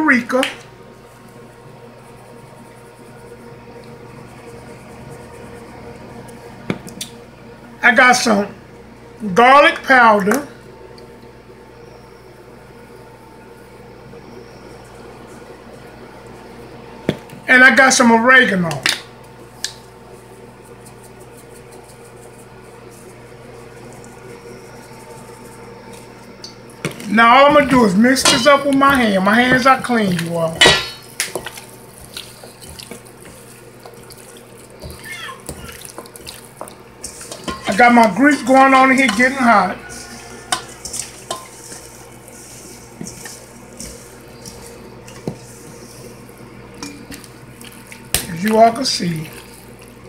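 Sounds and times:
steady electrical hum: 0.0s - 50.0s
wet squishing of raw chicken: 28.7s - 37.4s, 44.2s - 50.0s.

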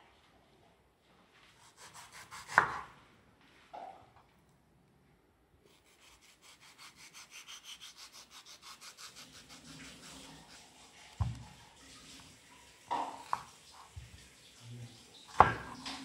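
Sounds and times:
knife sawing through mango: 1.6s - 2.6s, 5.7s - 11.3s.

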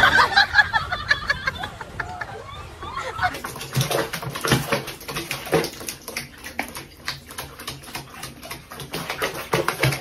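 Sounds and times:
water dripping and splashing: 3.3s - 10.0s.

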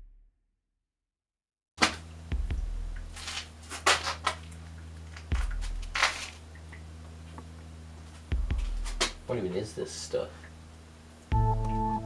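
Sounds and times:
low hum with deep throb: 2.2s - 3.2s, 4.6s - 9.3s, 11.3s - 12.0s.

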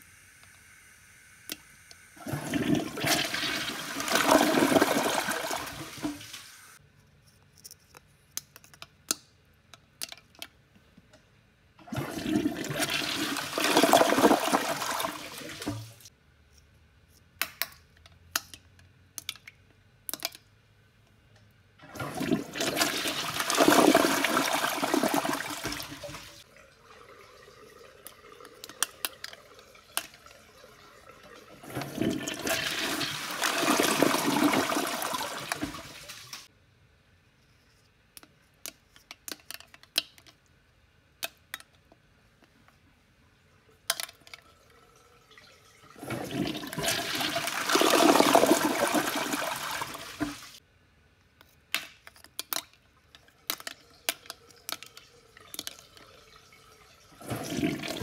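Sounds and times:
toilet flushing: 2.2s - 6.8s, 11.8s - 16.1s, 21.8s - 36.5s, 44.6s - 50.6s, 54.0s - 58.0s.

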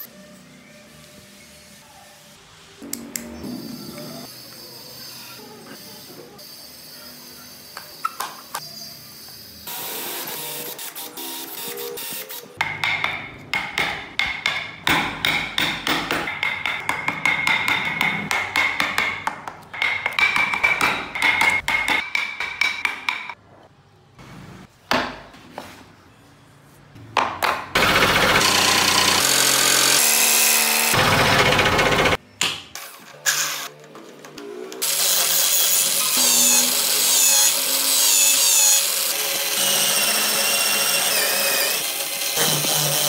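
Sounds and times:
bench power tool running: 27.8s - 32.2s, 34.8s - 43.0s.

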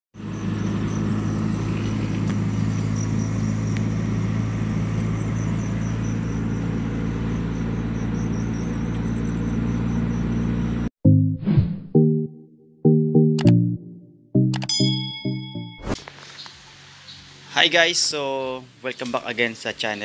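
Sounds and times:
car engine and exhaust drone: 0.2s - 10.9s.

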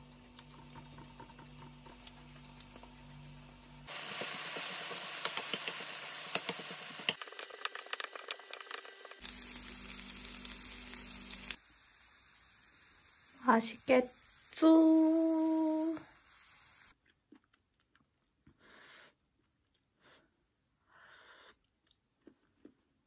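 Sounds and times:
food sizzling in a frying pan: 0.0s - 16.9s.

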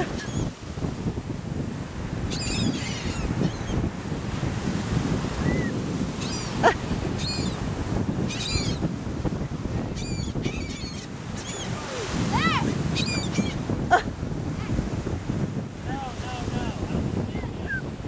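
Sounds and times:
gulls squawking: 5.5s - 7.6s, 9.9s - 14.0s.

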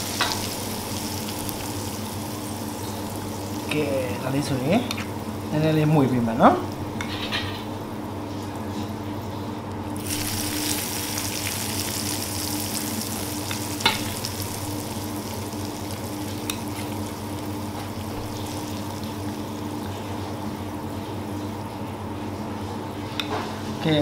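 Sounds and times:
hot oil sizzling in a pan: 0.0s - 5.5s, 10.0s - 21.0s.

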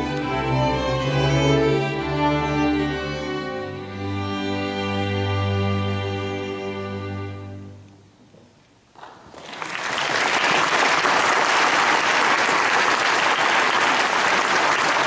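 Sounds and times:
audience applauding: 9.0s - 15.0s.

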